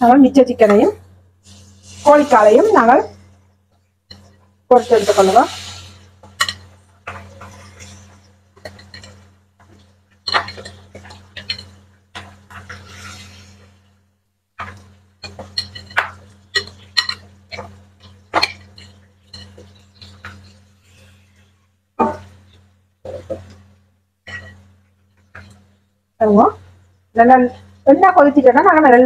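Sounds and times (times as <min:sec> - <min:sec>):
hot oil sizzling: 0:00.0 - 0:29.0
metal spoon clinking on glass bowl: 0:15.2 - 0:17.6.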